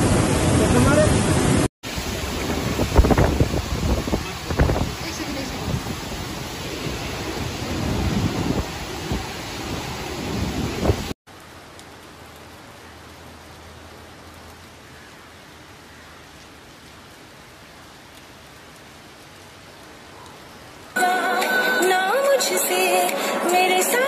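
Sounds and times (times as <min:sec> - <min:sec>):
wind gusts on microphone: 0:00.0 - 0:11.2
heavy rain: 0:00.0 - 0:24.0.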